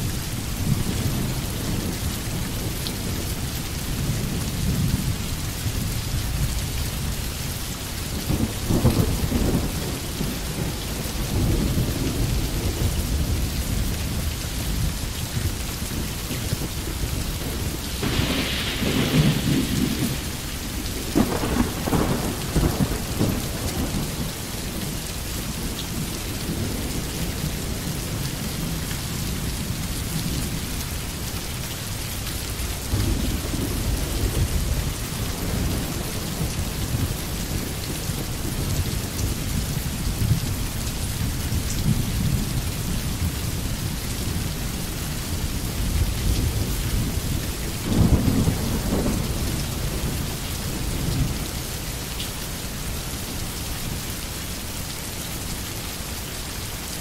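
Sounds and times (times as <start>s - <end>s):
steady rain: 0.0s - 57.0s
thunder rolling: 17.4s - 24.3s.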